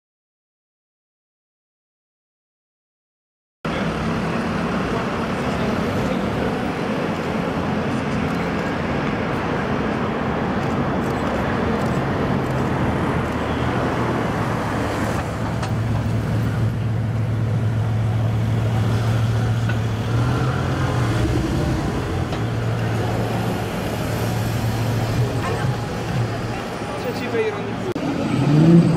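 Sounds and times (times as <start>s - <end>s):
cars crawling past: 3.7s - 28.9s
low engine drone: 14.9s - 28.9s.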